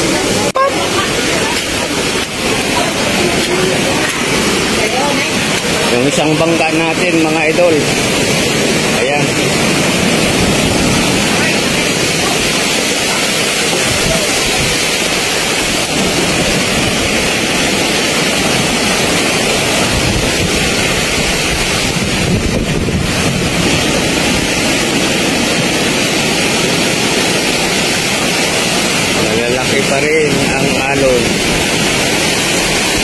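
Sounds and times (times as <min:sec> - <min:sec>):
big waves: 0:00.0 - 0:33.0
strong wind rushing: 0:00.0 - 0:33.0
wind buffeting the microphone: 0:06.6 - 0:33.0.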